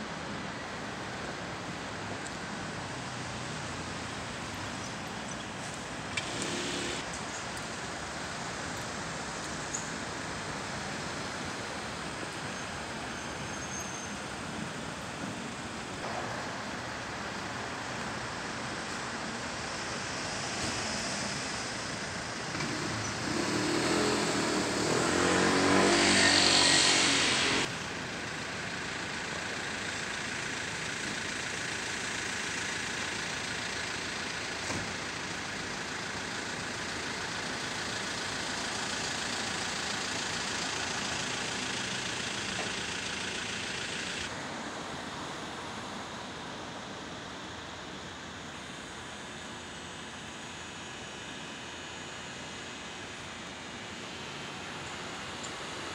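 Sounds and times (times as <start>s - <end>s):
city street traffic: 0.0s - 55.9s
vehicle passing: 23.4s - 27.7s.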